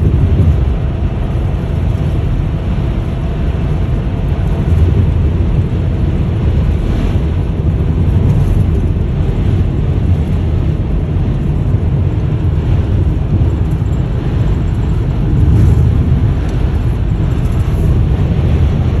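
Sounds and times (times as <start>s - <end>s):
road noise inside car: 0.0s - 19.0s
wind noise: 0.0s - 19.0s.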